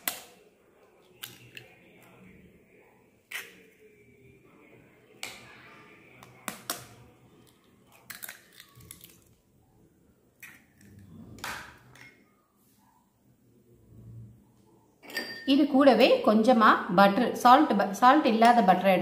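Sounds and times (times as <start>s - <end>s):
eggshell tapping and cracking: 7.9s - 9.3s, 10.4s - 12.1s.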